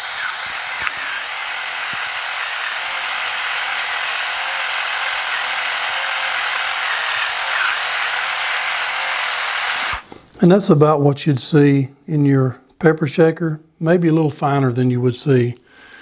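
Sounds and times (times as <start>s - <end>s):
electric pepper grinder buzzing: 0.0s - 10.1s.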